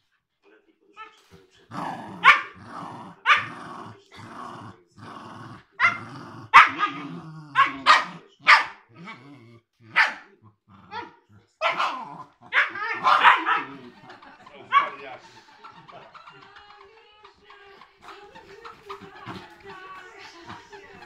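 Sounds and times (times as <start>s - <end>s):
dogs growling: 1.6s - 16.8s, 17.5s - 21.0s
dogs barking and yipping: 5.8s - 7.0s, 7.6s - 8.8s, 9.9s - 10.2s, 10.9s - 15.2s.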